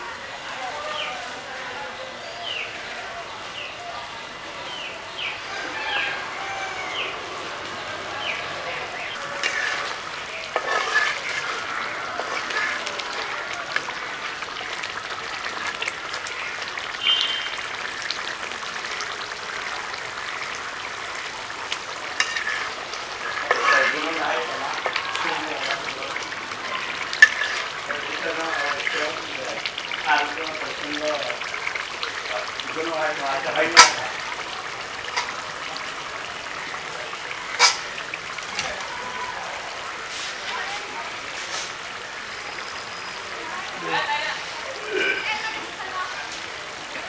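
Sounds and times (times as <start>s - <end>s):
curry sizzling and bubbling: 0.0s - 47.0s
metal spatula scraping pan: 9.2s - 13.3s, 22.0s - 25.0s, 27.1s - 28.0s, 37.6s - 37.9s.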